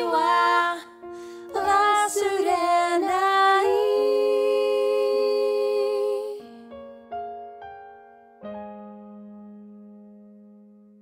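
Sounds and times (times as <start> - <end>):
women singing in harmony: 0.0 - 6.5.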